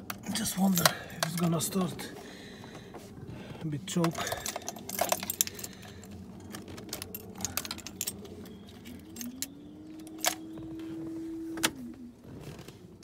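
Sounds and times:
keys jingling and clicking: 4.0s - 10.6s.

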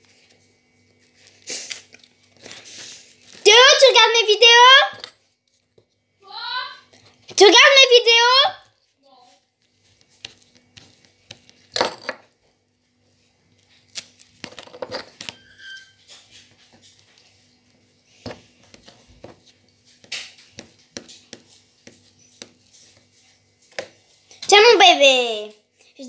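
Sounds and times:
knife scraping bread: 13.0s - 24.0s.

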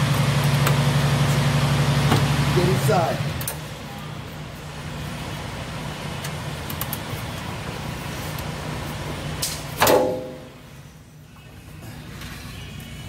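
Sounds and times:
loud metallic clank: 9.4s - 10.6s.

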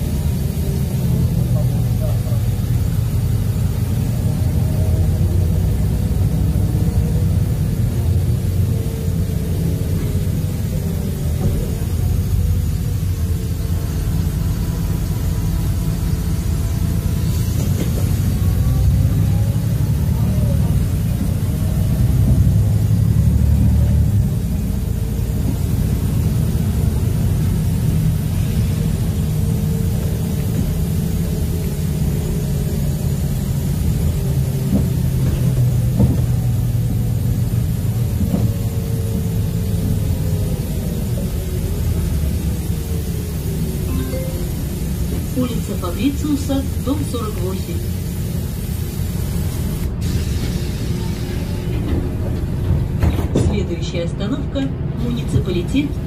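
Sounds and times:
bus engine rumble: 0.0s - 56.0s
road noise: 0.0s - 56.0s.

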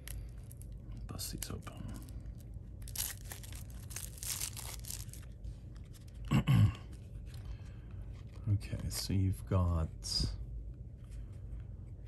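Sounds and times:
plastic wrapping tearing and crinkling: 0.0s - 6.1s.

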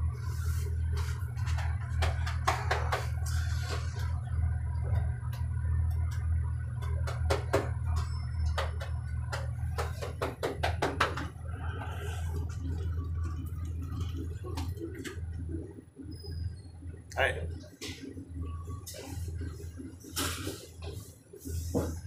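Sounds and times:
elevator motor humming: 0.0s - 22.0s
sharp clicks and knocks: 4.9s - 11.4s.

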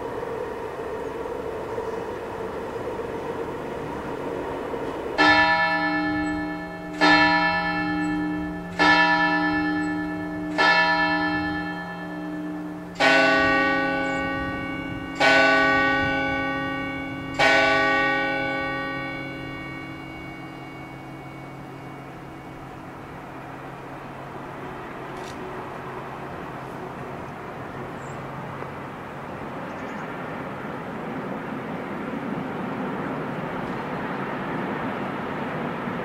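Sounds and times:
deeper bell striking: 5.2s - 24.0s
church bell striking: 5.2s - 24.9s.

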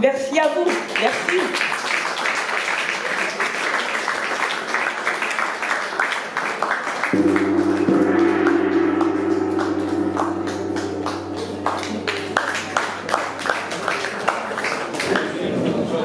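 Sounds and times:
audience clapping: 0.0s - 7.9s, 11.1s - 16.0s
gong struck with mallet: 7.1s - 14.9s.

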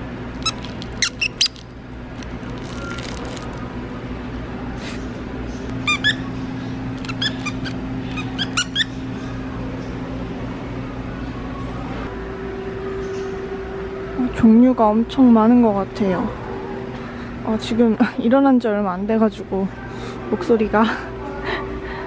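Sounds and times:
steady low hum: 0.0s - 22.0s
dog toy squeaks: 0.4s - 1.7s, 5.8s - 6.3s, 7.0s - 9.0s.

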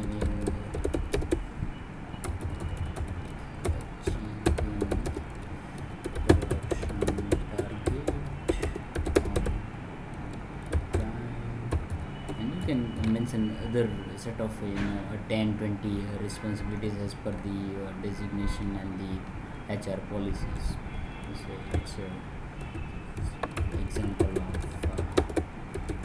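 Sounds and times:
computer keyboard typing: 0.0s - 1.5s, 2.2s - 9.6s, 10.2s - 13.3s, 21.2s - 22.0s, 22.6s - 26.0s.

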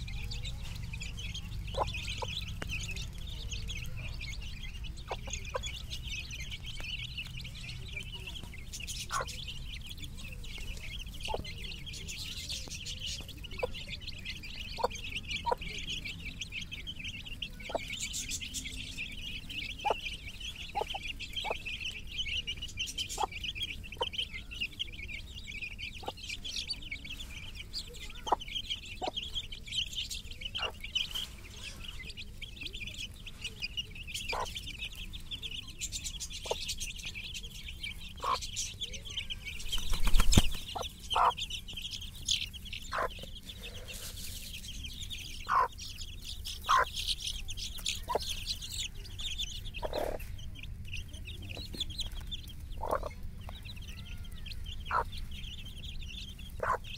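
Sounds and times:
chicks peeping: 0.0s - 56.9s.

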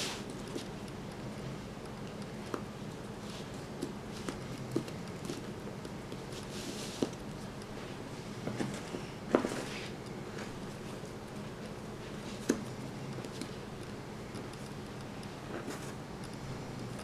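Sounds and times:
steady low hum: 0.0s - 17.0s
jigsaw pieces tapping: 3.7s - 6.4s, 10.4s - 17.0s.

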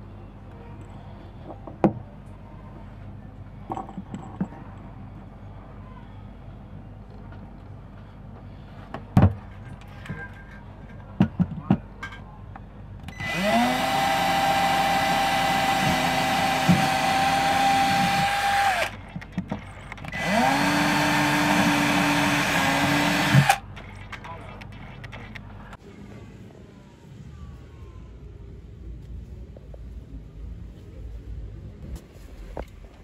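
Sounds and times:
handling clicks and knocks: 3.6s - 4.9s, 18.9s - 20.2s
cordless drill whining: 13.1s - 18.9s, 20.1s - 23.6s.

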